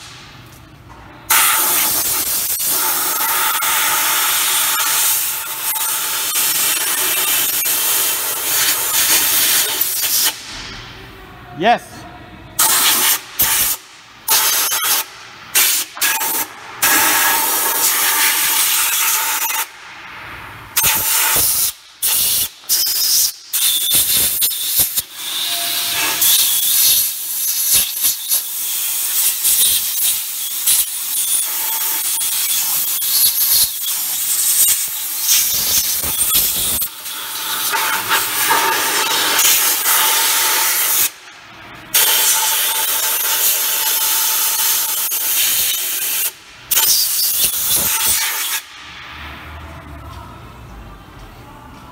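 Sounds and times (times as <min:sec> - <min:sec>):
compressed air hissing from blow gun: 0:20.8 - 0:38.6.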